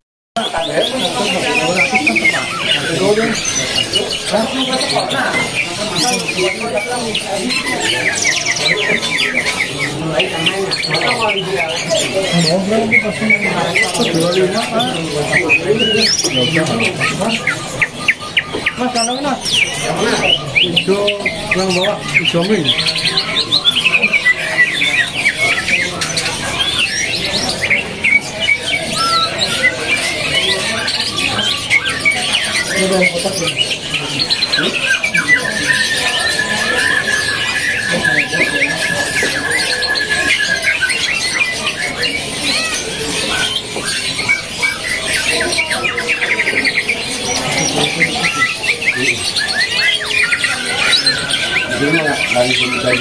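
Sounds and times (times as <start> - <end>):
birds singing chirps: 0.4 - 53.0.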